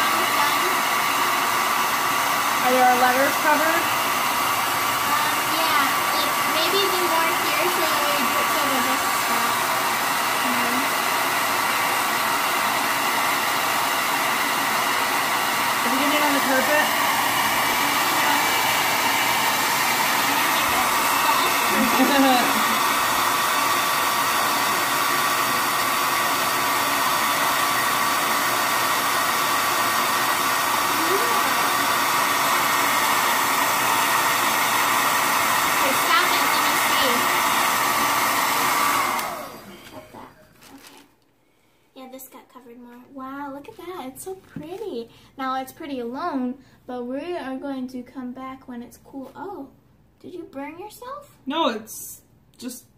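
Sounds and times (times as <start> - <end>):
hair dryer blowing air: 0.0 - 40.4.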